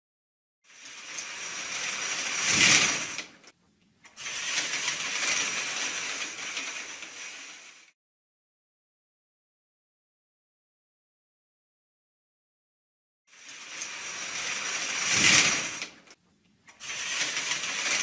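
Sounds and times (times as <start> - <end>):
stage curtain swishing and rattling: 0.8 - 3.5, 4.1 - 7.9, 13.5 - 16.2, 16.8 - 18.0.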